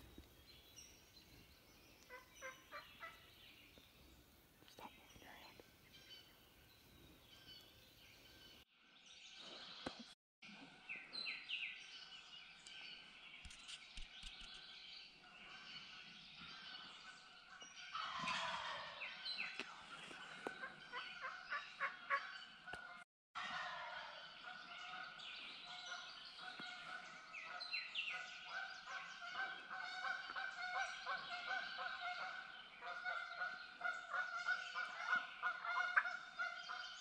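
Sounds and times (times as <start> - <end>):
songbirds chirping: 0.0 - 23.0, 23.8 - 37.0
turkeys gobbling: 17.9 - 19.0, 28.9 - 36.6.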